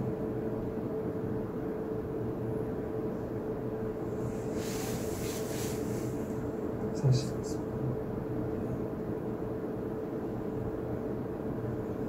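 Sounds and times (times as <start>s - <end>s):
room equipment hum: 0.0s - 12.0s
soft rustling hiss: 4.1s - 6.4s.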